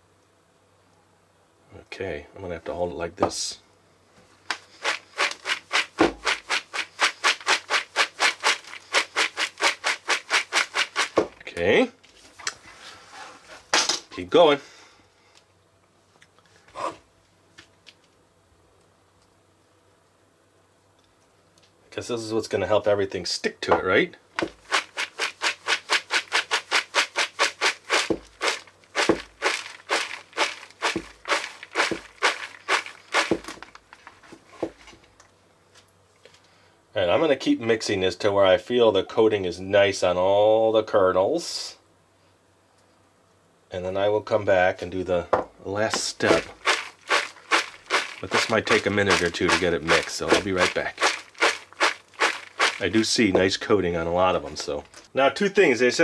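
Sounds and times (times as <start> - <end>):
popcorn swishing in a bowl: 4.5 - 11.2, 24.4 - 34.9, 45.8 - 53.4.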